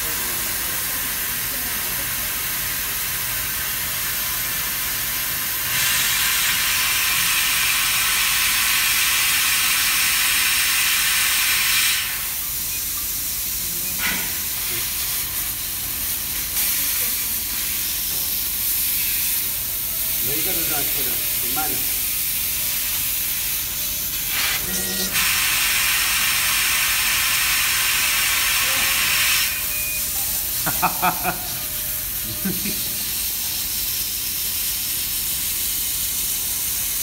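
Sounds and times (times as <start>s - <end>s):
blowing air hiss: 13.3s - 37.0s
laser crackling sizzle: 18.9s - 34.4s.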